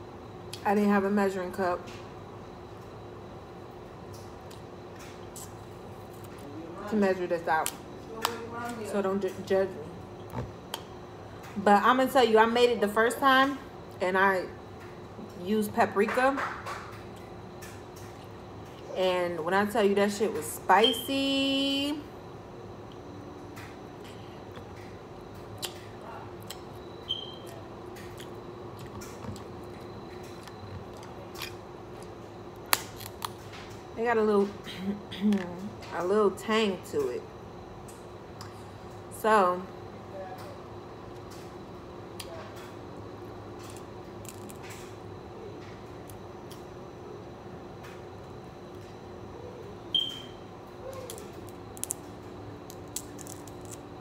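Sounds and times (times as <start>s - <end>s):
steady low hum: 0.0s - 54.0s
crab shell cracking: 32.6s - 33.4s, 43.6s - 44.9s, 50.9s - 53.9s.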